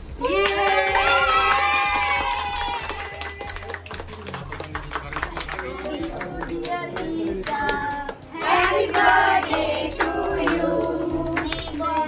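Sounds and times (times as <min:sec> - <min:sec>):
hands clapping: 0:00.0 - 0:12.0
adults and children singing: 0:05.7 - 0:12.0.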